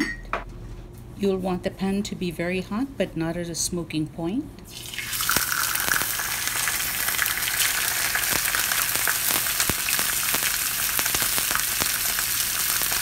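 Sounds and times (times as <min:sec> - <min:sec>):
fish sizzling in oil: 0:04.7 - 0:13.0.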